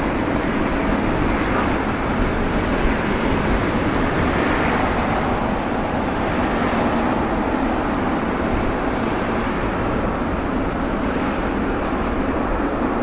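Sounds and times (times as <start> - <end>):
jet airliner approaching: 0.0 - 13.0.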